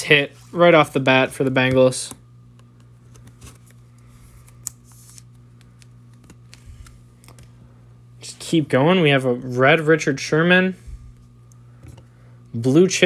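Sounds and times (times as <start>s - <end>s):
trading cards rustling: 2.6s - 7.6s.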